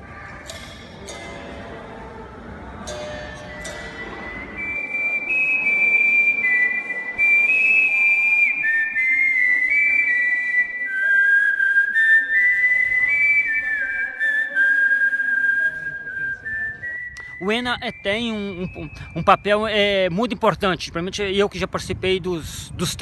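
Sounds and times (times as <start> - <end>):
person whistling a slow tune: 3.6 - 19.5.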